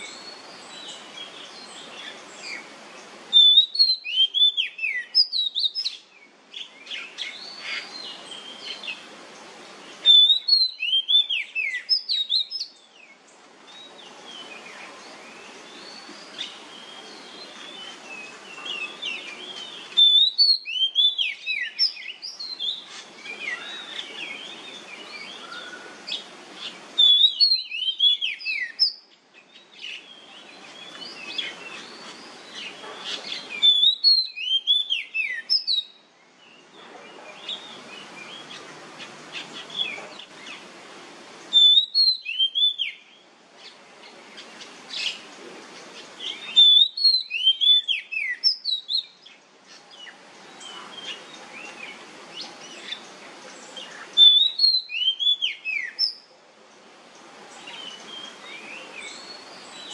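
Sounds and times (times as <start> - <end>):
bird singing whistled phrases: 3.3 - 6.0, 10.0 - 12.8, 18.7 - 22.8, 27.0 - 29.1, 33.2 - 36.0, 41.5 - 43.2, 46.3 - 49.2, 54.2 - 56.2.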